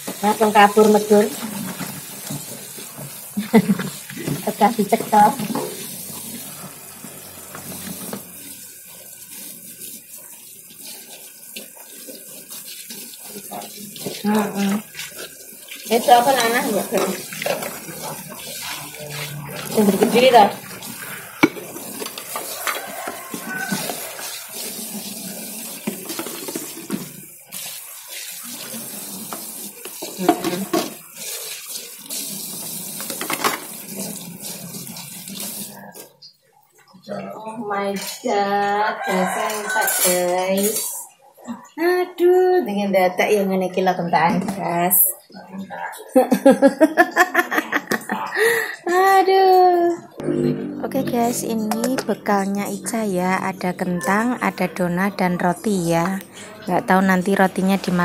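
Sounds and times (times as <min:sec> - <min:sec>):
tap water running into sink: 0:00.0 - 0:36.2, 0:50.8 - 0:58.0
water splashing: 0:00.0 - 0:36.9
dishes knocking: 0:21.3 - 0:24.0.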